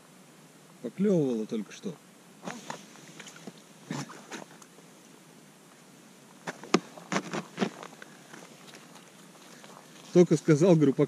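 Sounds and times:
knocks and rustles of fishing rod: 0:06.4 - 0:09.7.

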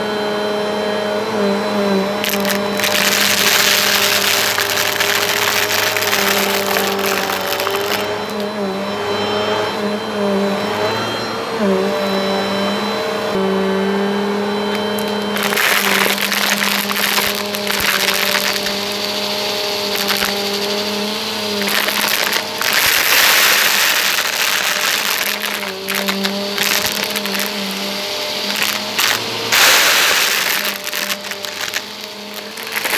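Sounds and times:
vacuum cleaner motor whine: 0:00.0 - 0:32.9
plastic beads rattling: 0:02.2 - 0:08.5, 0:14.7 - 0:32.9.

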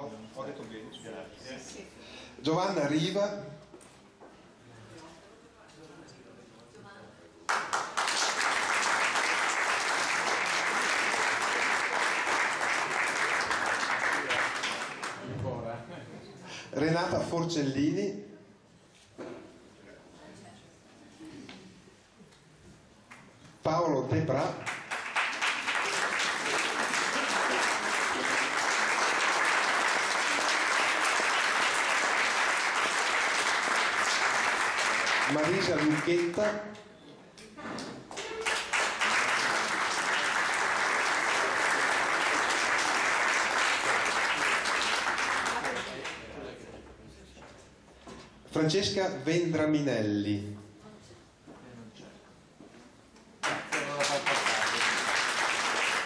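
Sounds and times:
audience applauding: 0:07.5 - 0:15.3, 0:24.6 - 0:36.4, 0:38.1 - 0:46.4, 0:53.4 - 0:56.0.

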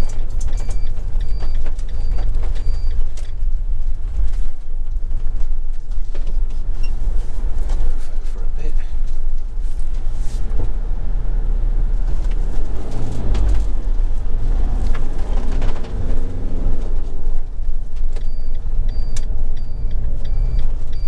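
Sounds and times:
engine and road rumble: 0:00.0 - 0:21.0
knocks and rattles: 0:12.0 - 0:18.4.

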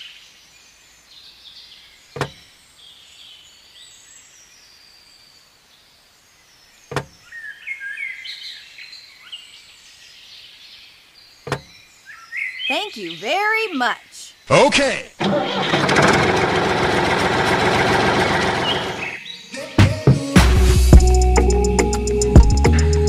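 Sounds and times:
birds chirping: 0:11.3 - 0:14.6.

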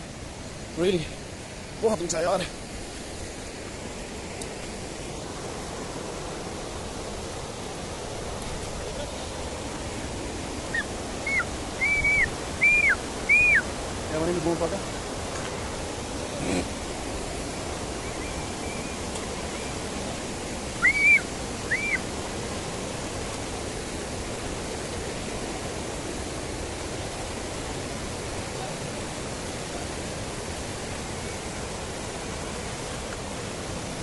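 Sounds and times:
mountain stream rushing: 0:00.0 - 0:34.0
loud chirps: 0:10.7 - 0:13.7, 0:20.8 - 0:22.0.

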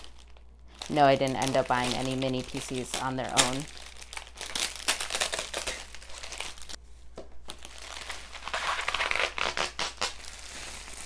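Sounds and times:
bubble wrap crinkling: 0:00.0 - 0:11.0.

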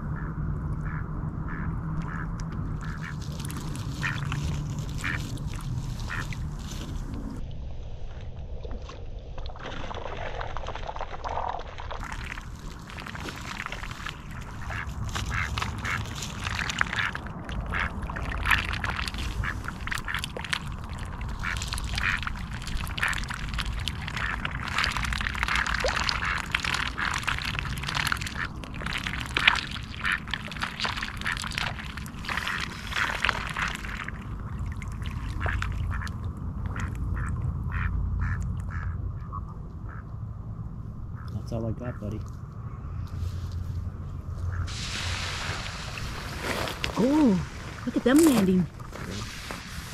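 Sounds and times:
steady low rumble: 0:00.0 - 0:10.2, 0:10.8 - 0:49.9
ducks quacking: 0:00.1 - 0:06.5, 0:14.2 - 0:20.4, 0:21.4 - 0:23.3, 0:24.1 - 0:27.2, 0:29.8 - 0:31.5, 0:35.3 - 0:40.1, 0:44.4 - 0:44.7
ducks dabbling in water: 0:00.2 - 0:07.4, 0:09.5 - 0:40.1, 0:44.4 - 0:49.7.

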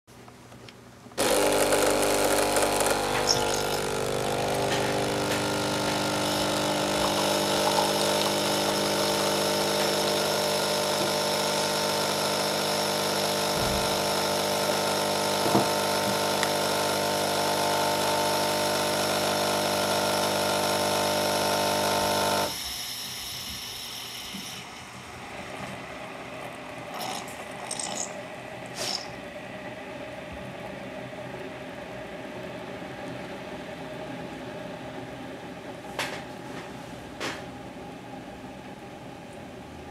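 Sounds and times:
coffee dripping from spouts: 0:01.2 - 0:15.4
coffee machine pump humming: 0:01.2 - 0:34.6.

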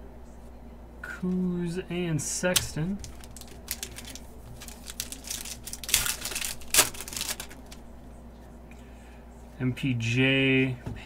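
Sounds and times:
cards clicking and rustling: 0:02.5 - 0:07.8
foil wrapper tearing and crinkling: 0:02.6 - 0:07.8.

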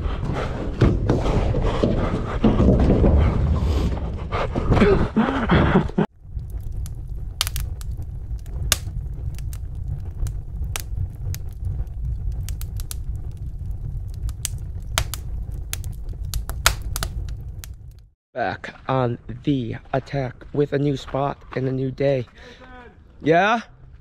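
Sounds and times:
fire crackling and rumbling: 0:00.0 - 0:18.2.

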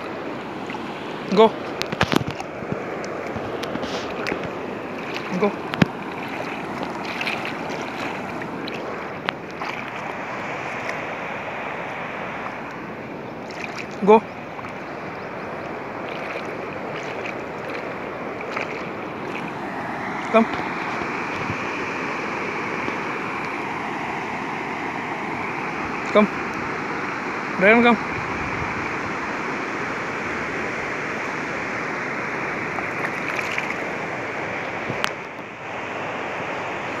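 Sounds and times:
puppy splashing in water: 0:00.0 - 0:11.2, 0:13.4 - 0:21.6, 0:32.5 - 0:34.1
shallow water washing: 0:00.0 - 0:37.0.

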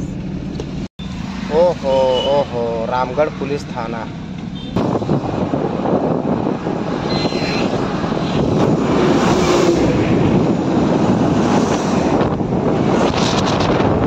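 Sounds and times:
wind noise: 0:04.6 - 0:14.0.

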